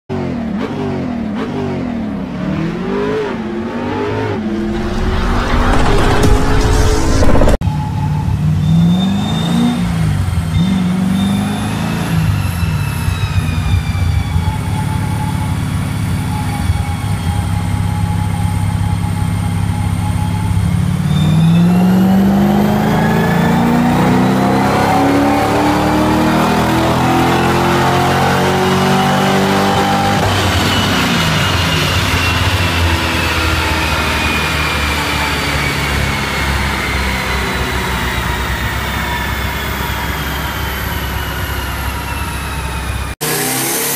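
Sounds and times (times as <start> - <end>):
car engine revving on dyno: 21.2 - 42.5, 43.2 - 43.9.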